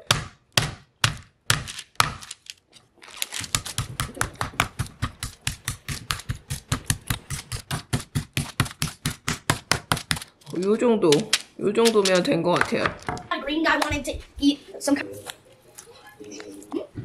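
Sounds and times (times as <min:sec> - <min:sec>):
meat mallet pounding meat: 0:00.0 - 0:02.3, 0:03.5 - 0:10.2.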